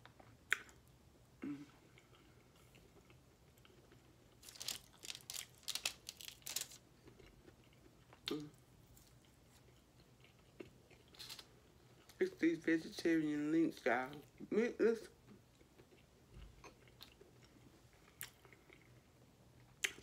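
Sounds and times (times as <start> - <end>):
crunching food on foil tray: 3.7 - 7.2, 11.0 - 11.6.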